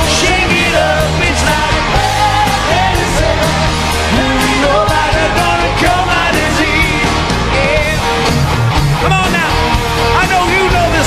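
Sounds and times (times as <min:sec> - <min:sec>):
man singing into microphone: 0:00.0 - 0:03.2, 0:04.1 - 0:08.0
live rock band playing: 0:00.0 - 0:11.0.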